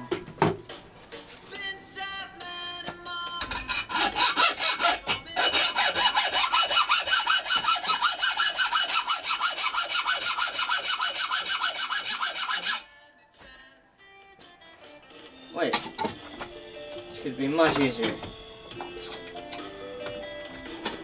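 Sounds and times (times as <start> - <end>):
hacksaw cutting metal: 3.4 - 12.9.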